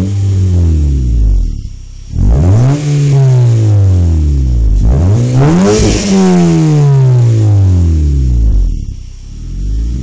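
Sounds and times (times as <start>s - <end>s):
car engine revving: 0.0s - 10.0s.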